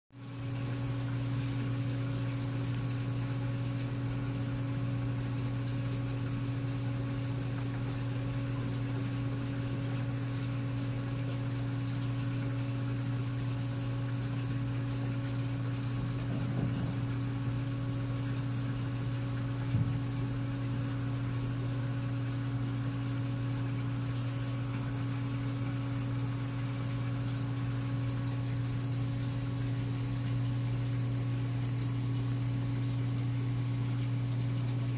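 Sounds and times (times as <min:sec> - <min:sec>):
aquarium pumps humming: 0:00.2 - 0:34.9
faint water hiss: 0:08.1 - 0:33.2.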